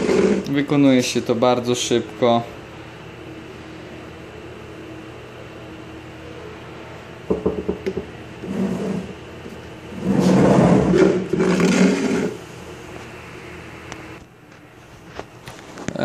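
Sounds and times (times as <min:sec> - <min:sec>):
plastic bucket scraping on table: 0:00.0 - 0:00.5, 0:08.4 - 0:09.2, 0:09.9 - 0:12.4
steady low hum: 0:00.0 - 0:16.0.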